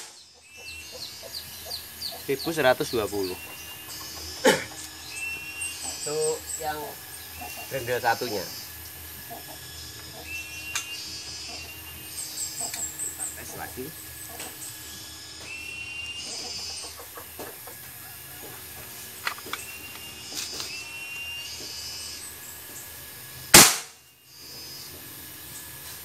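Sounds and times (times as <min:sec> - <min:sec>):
air rifle shot crack: 0:23.5 - 0:24.0.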